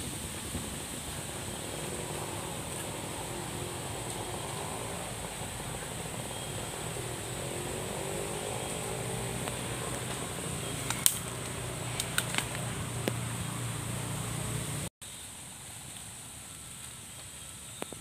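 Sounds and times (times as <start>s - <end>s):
outdoor hiss and hum: 0.0s - 18.0s
dry leaves and twigs snapping: 8.5s - 13.3s.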